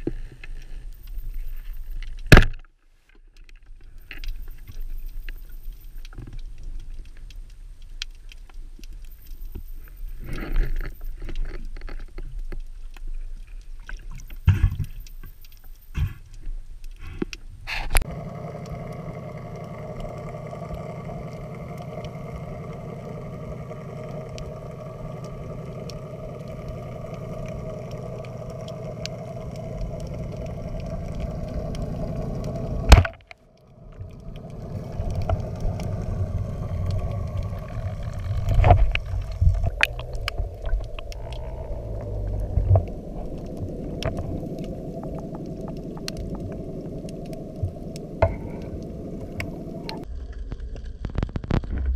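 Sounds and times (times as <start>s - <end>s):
underwater low rumble and hiss: 0.0s - 51.9s.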